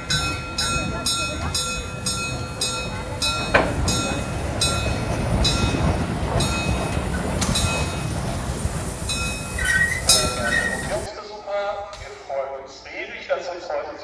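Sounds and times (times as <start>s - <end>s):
steam locomotive rumble and hissing: 0.0s - 11.1s.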